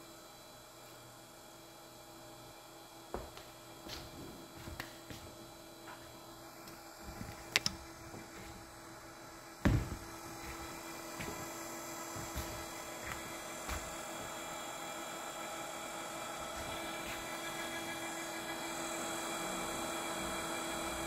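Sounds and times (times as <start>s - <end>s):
steady electrical hum: 0.0s - 21.0s
heavy knock: 9.6s - 10.1s.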